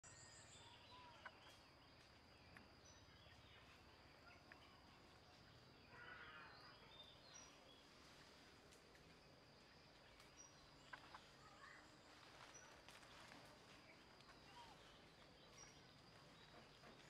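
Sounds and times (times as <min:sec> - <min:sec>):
bird chirps: 0:00.0 - 0:07.9, 0:09.7 - 0:13.2.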